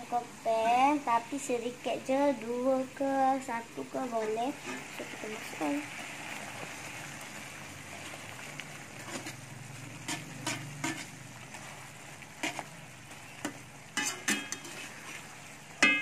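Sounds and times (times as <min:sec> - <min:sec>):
food frying in a wok: 0:00.0 - 0:16.0
metal spatula scraping a pan: 0:04.5 - 0:05.2, 0:09.0 - 0:16.0.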